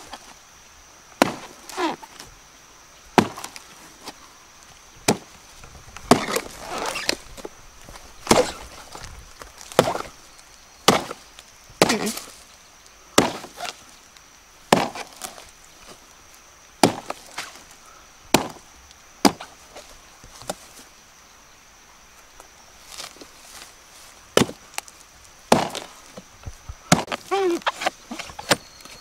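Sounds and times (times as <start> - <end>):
hatchet chopping wood: 1.2 - 1.5, 3.2 - 3.6, 6.1 - 6.5, 8.2 - 8.6, 9.7 - 10.1, 10.9 - 11.2, 11.8 - 12.2, 13.2 - 13.6, 14.7 - 15.3, 16.8 - 17.2, 18.3 - 18.6, 19.2 - 19.5, 24.4 - 24.6, 25.5 - 25.9, 26.9 - 27.2.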